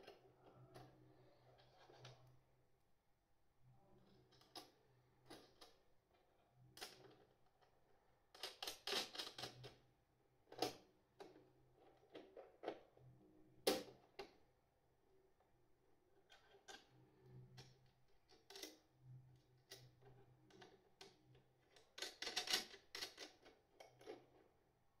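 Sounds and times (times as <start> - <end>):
small parts clicking and rattling: 8.3 - 9.8, 16.2 - 18.9, 19.6 - 24.5.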